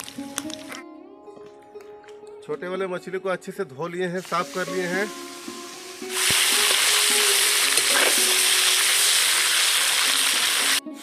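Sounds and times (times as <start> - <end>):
fish sizzling in hot oil: 4.2 - 11.0.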